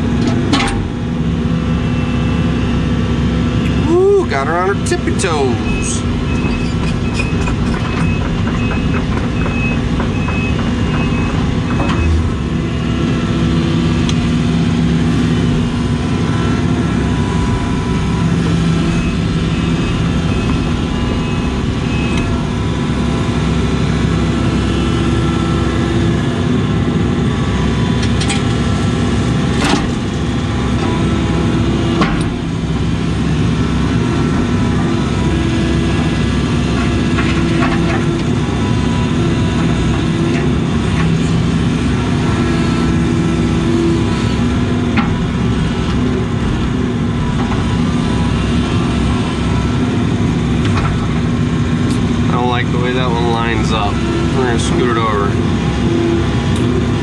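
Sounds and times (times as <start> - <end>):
excavator diesel engine and hydraulics: 0.0 - 57.0
high pulsing beep: 5.5 - 7.4.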